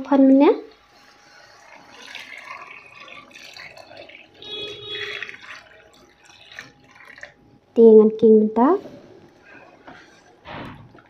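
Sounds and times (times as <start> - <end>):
curry bubbling in a pot: 0.8 - 7.5.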